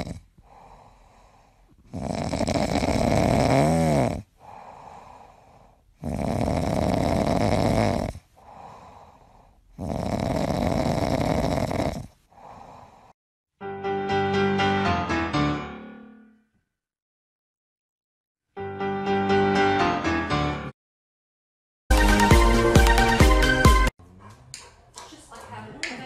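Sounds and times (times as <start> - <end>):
dog snoring: 0.0 - 13.1
dog breathing: 0.0 - 13.2.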